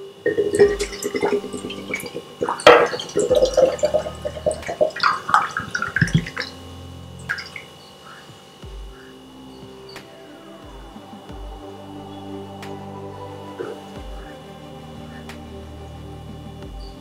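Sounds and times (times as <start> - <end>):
liquid glugging into glass: 0.3 - 6.5.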